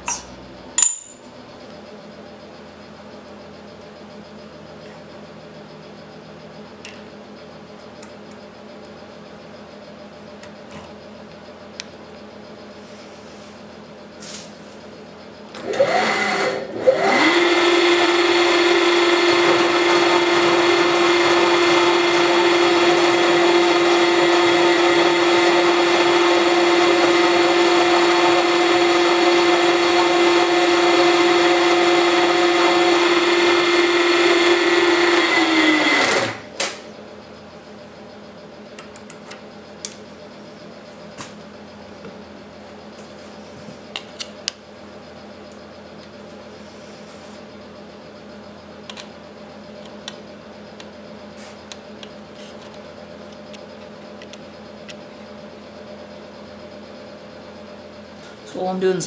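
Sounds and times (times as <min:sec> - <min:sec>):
milling machine motor whining: 0:15.1 - 0:59.0.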